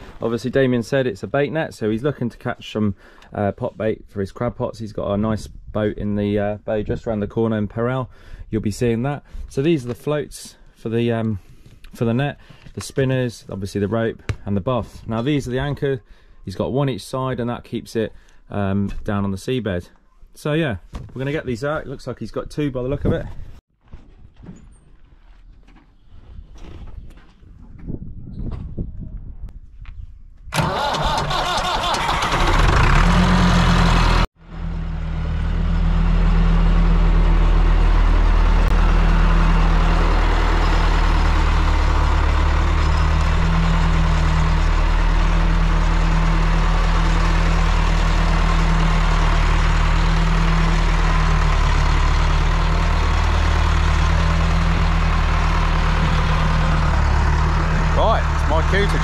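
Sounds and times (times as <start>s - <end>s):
tractor diesel engine starting: 30.5s - 59.0s.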